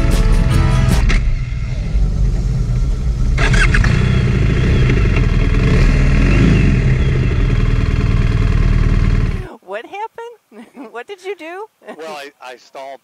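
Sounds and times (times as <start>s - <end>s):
motorcycle engine running: 0.0s - 9.5s.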